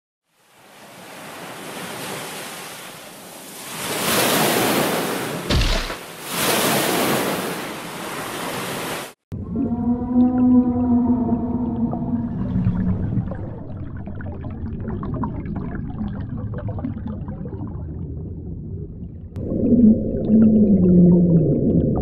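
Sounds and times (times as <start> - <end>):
ocean surf: 0.3 - 9.2
low thump: 5.5 - 6.0.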